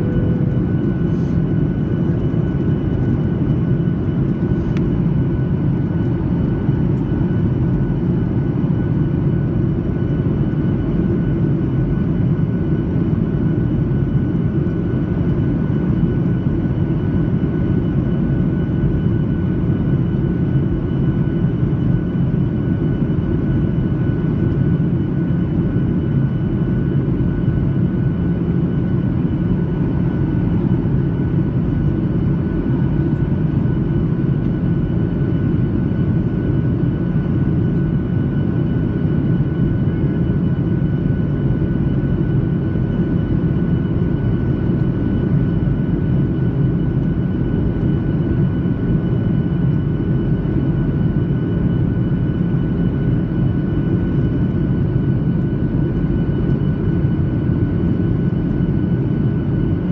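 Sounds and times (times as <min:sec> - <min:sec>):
faint high whine: 0:00.0 - 0:02.4
jet airliner cabin roar: 0:00.0 - 0:59.9.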